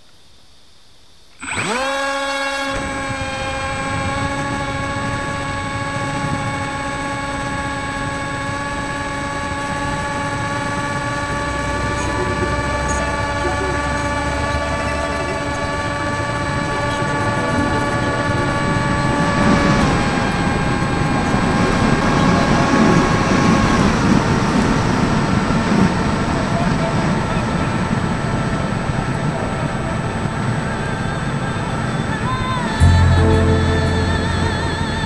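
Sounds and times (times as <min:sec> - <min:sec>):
electric motor and propeller whine: 0:01.4 - 0:35.0.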